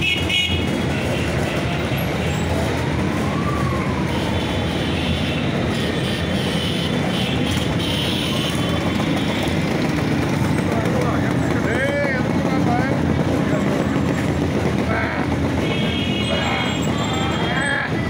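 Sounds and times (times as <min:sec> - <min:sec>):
scooters riding past: 0:06.3 - 0:18.0.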